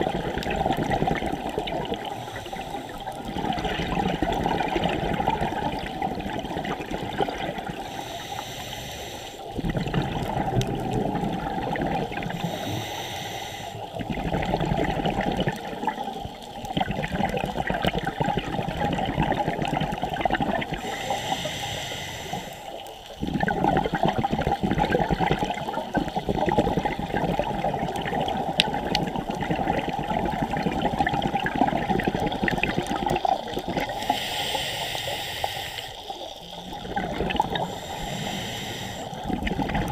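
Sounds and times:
underwater exhaled bubbling: 0:00.0 - 0:39.9
regulator inhalation hiss: 0:02.0 - 0:03.2, 0:07.8 - 0:09.5, 0:12.3 - 0:14.0, 0:20.8 - 0:23.0, 0:33.9 - 0:36.6, 0:37.5 - 0:39.3.

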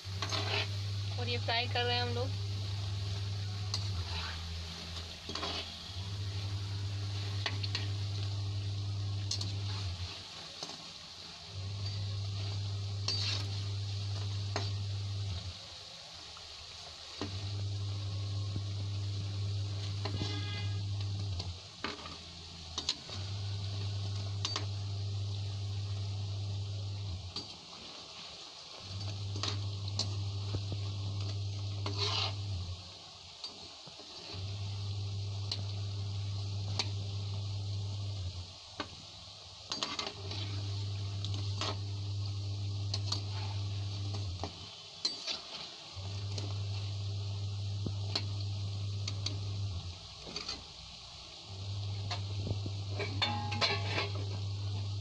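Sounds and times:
steady low hum: 0:00.0 - 0:33.3, 0:33.9 - 0:55.0
oil sizzling: 0:00.0 - 0:55.0
metal spoon scraping a pan: 0:00.1 - 0:01.0, 0:03.6 - 0:08.3, 0:11.7 - 0:15.4, 0:19.8 - 0:23.3, 0:31.2 - 0:32.6, 0:39.7 - 0:41.8, 0:45.0 - 0:46.4, 0:52.9 - 0:54.4
metal spatula clinking on pan: 0:53.1 - 0:53.9.

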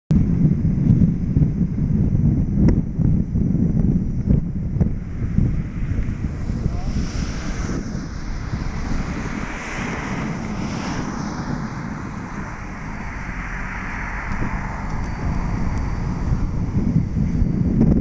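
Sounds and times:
road and tyre noise: 0:00.1 - 0:18.0
wind on microphone: 0:00.1 - 0:18.0.

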